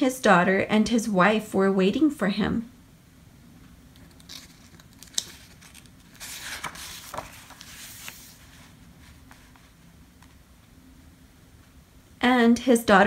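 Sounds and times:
page rustling: 3.9 - 10.4.

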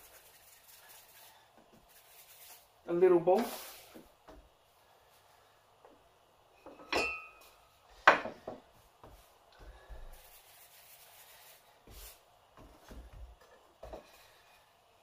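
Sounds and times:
soft rubbing: 0.0 - 2.8, 8.8 - 12.8
utensil clink with ring: 6.8 - 7.5.

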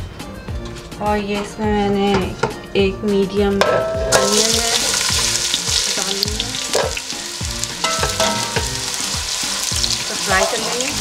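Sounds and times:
onions sizzling in oil: 4.1 - 11.0.

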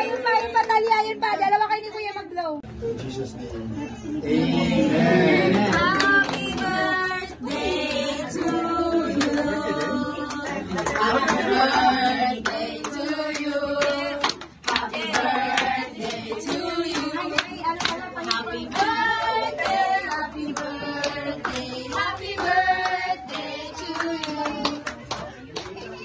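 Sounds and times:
group singing: 4.2 - 25.2
hand clapping: 13.8 - 18.9, 19.6 - 26.0.

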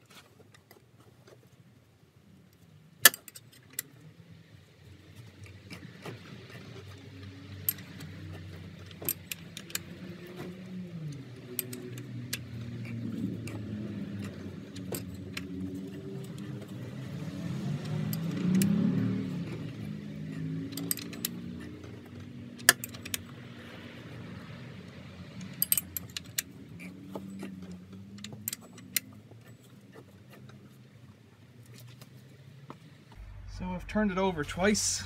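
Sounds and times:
metallic clicks and clinks: 11.1 - 16.6, 20.4 - 22.0, 22.6 - 23.3, 25.4 - 29.8
low wavering hum: 33.1 - 35.0.

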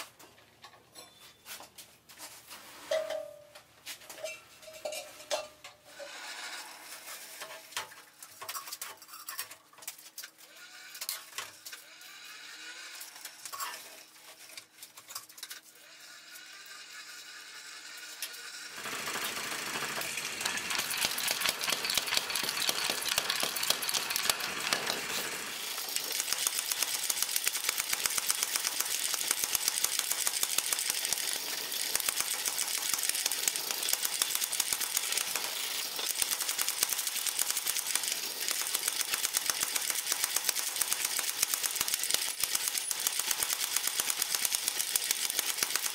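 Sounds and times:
steel tools clinking: 4.1 - 5.8, 20.0 - 26.2.

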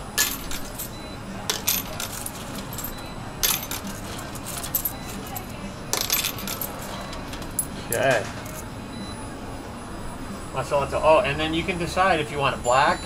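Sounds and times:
coins fed into a coin slot: 0.0 - 8.6
coins clinking: 0.0 - 8.7.

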